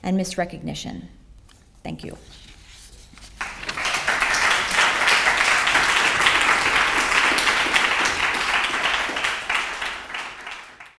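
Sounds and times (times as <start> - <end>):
audience applauding: 3.4 - 10.9.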